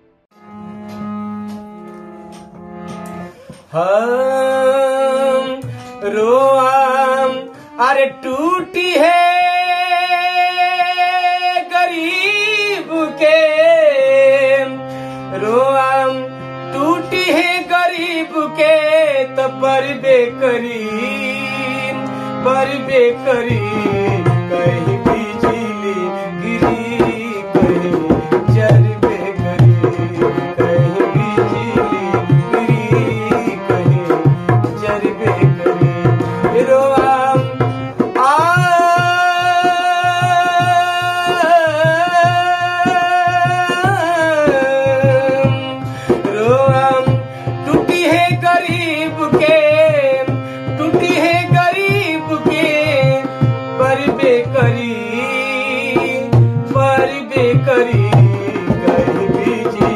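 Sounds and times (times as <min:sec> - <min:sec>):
harmonium: 0:00.0 - 0:59.9
man singing folk song: 0:03.7 - 0:59.9
hand drum rhythm: 0:56.0 - 0:59.9.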